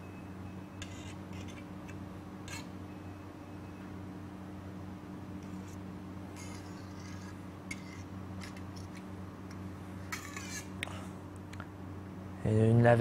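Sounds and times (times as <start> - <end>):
steady low hum: 0.0 - 13.0
knife scraping metal frame: 0.8 - 2.8, 5.4 - 5.8, 6.4 - 9.1, 10.0 - 10.8.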